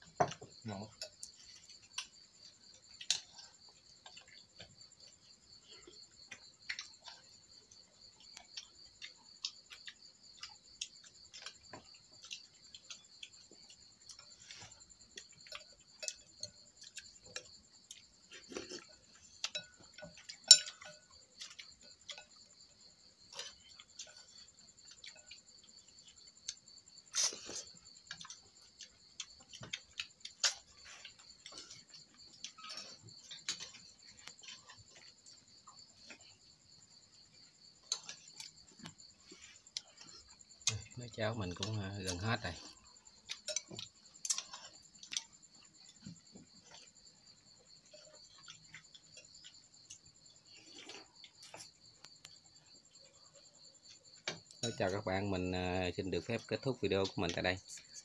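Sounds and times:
night insects trilling: 0:00.0 - 0:58.0
spoons clinking against bowls: 0:19.4 - 0:21.5.

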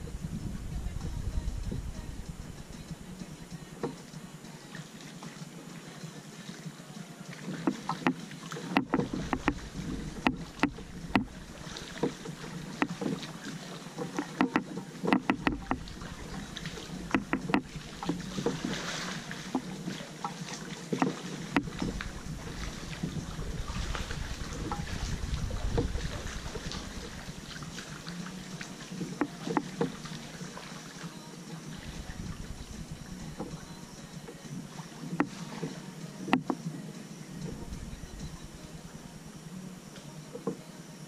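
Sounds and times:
paddle strokes splashing water: 0:00.0 - 0:41.0
sharp knocks and clicks: 0:07.6 - 0:11.3, 0:14.1 - 0:15.9, 0:17.1 - 0:18.6.

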